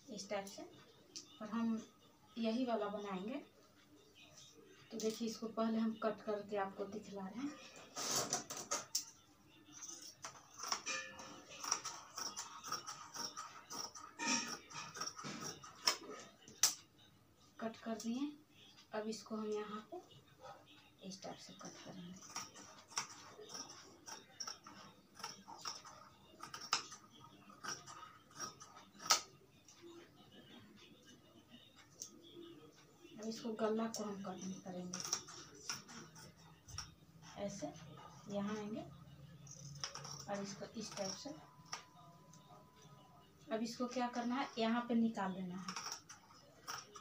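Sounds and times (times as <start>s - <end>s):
scissors snipping fabric: 9.9s - 16.8s, 21.6s - 29.4s, 39.5s - 41.3s.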